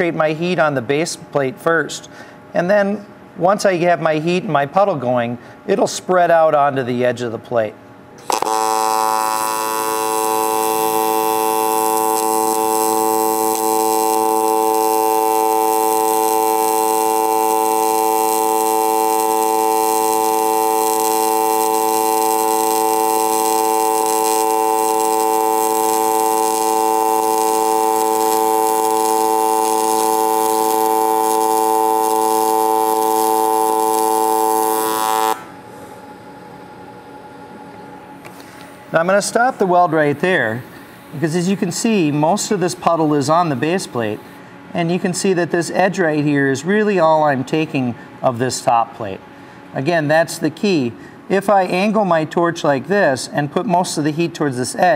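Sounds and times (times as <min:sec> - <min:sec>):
welding arc buzzing: 0:08.2 - 0:37.4, 0:38.2 - 0:44.4.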